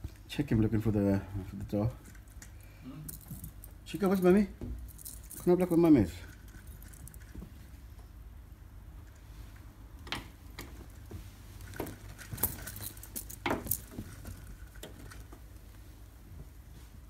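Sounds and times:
metal clip jingling: 3.1s - 7.3s, 11.6s - 15.3s
blind slats clicking and rattling: 10.0s - 15.6s.

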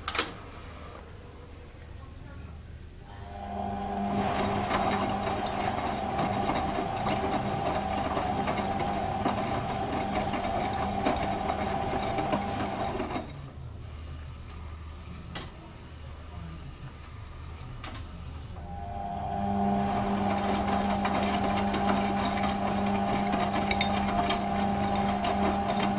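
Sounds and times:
low hum: 3.0s - 13.2s, 18.6s - 25.9s
washing machine motor whine: 3.0s - 13.5s, 18.5s - 25.9s.

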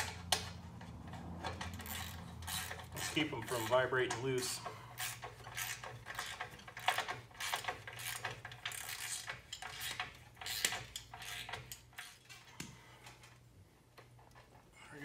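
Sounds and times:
ratchet wrench clicking: 1.4s - 12.2s.

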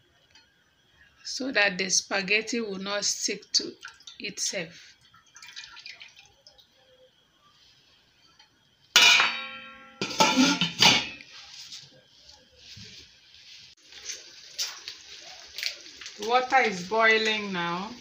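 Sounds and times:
faint steady hiss: 0.0s - 18.0s
metallic clang of cookware: 9.0s - 11.3s.

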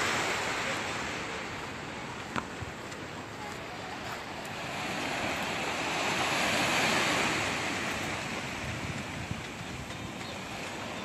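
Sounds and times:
small waves washing on sandy shore: 0.0s - 11.0s.

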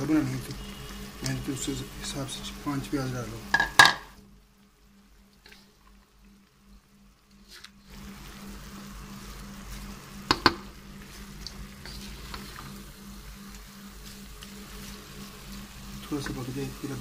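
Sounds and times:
onions and meat sizzling in oil: 0.0s - 17.0s
spoon knocking against pan: 3.5s - 4.1s, 10.3s - 10.6s.

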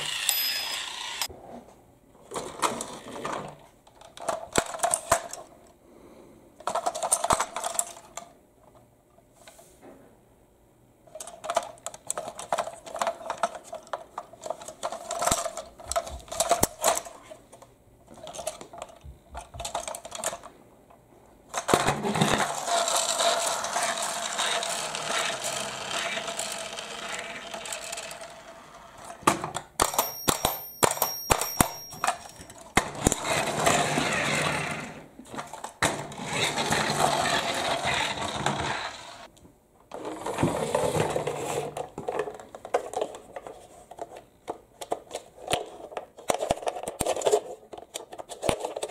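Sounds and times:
toy motor whirring: 0.0s - 1.3s, 22.4s - 28.6s, 36.2s - 39.3s.

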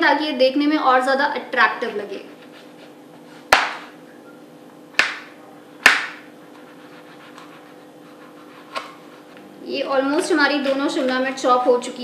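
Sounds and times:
knife striking chopping board: 3.5s - 3.9s, 5.0s - 6.2s.

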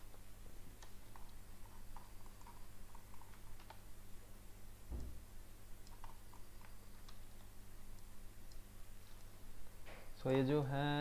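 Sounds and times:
low steady hum: 0.0s - 11.0s
computer mouse clicks: 0.8s - 3.9s, 5.8s - 9.4s.

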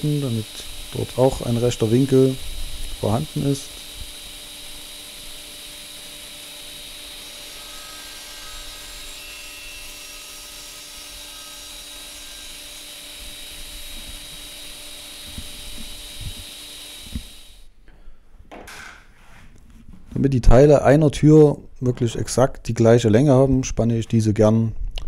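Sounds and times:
circular saw cutting wood: 0.0s - 17.7s.

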